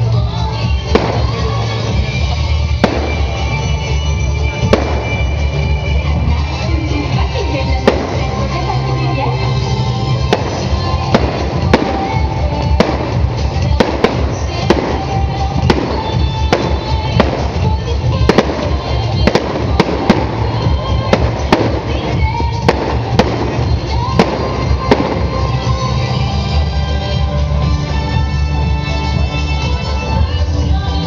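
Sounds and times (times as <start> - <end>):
loud music with thumping bass: 0.0 - 31.0
fireworks sharp bangs: 0.7 - 6.6, 7.6 - 8.8, 9.6 - 26.2.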